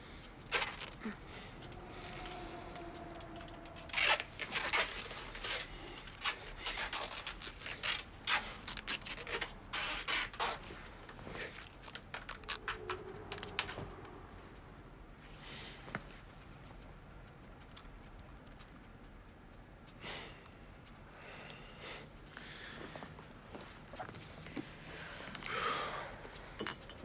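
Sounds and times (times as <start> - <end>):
rustling and scraping handling: 0.4 - 14.0.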